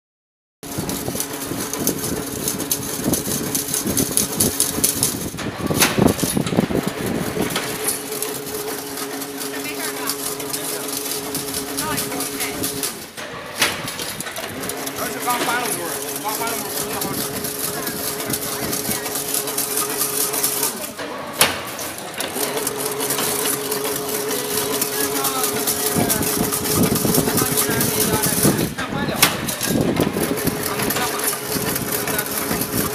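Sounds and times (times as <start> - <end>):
fence-making machine humming: 0.6 - 32.9
machine clattering: 0.6 - 32.9
voices: 9.3 - 12.9, 14.5 - 32.9.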